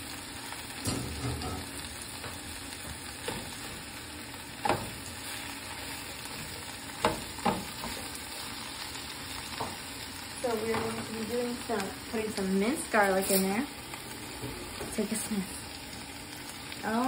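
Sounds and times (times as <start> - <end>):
leaves sizzling in oil: 0.0 - 17.0
spatula knocking against pan: 7.0 - 8.0.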